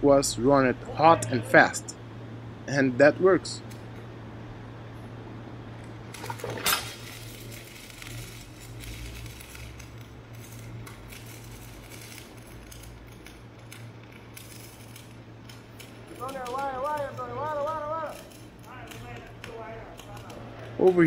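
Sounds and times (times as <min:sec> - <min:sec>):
steady low hum: 0:00.0 - 0:21.0
welding arc crackling: 0:05.7 - 0:21.0.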